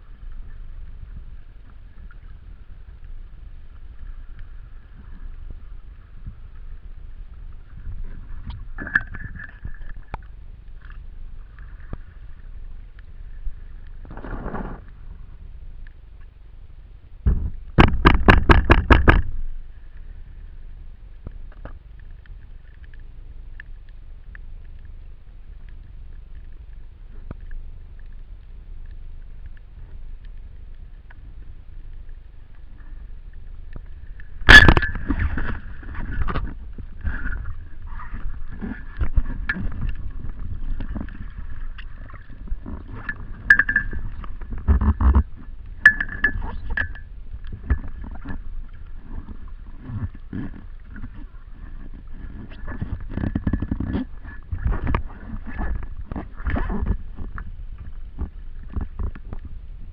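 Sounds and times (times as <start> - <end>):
fast underwater clicks: 21.2 - 59.5
gun and line clattering: 42.9 - 45.2, 45.8 - 47.0.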